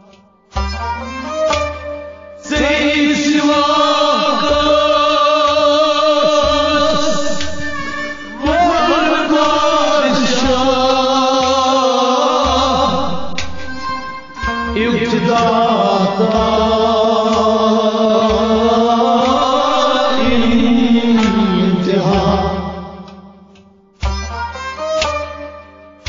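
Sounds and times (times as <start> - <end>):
instrumental accompaniment: 0.0 - 26.0
low drum beat: 2.5 - 23.1
solo voice singing: 2.5 - 23.3.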